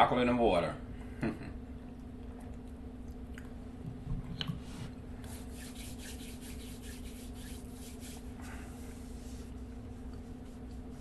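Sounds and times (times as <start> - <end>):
plastic bottle rubbing and scratching: 5.3 - 8.3.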